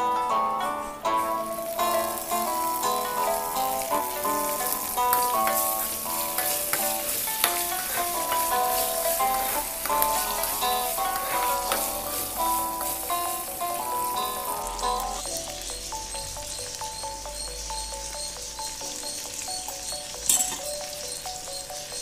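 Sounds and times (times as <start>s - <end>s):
plucked string music: 0.0s - 22.0s
food sizzling in oil: 0.2s - 22.0s
steel ladle scraping pan: 1.2s - 15.2s.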